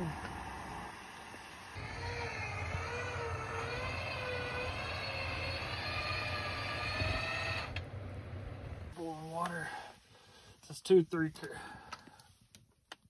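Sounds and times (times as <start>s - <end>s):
winch whining under load: 0.0s - 9.0s.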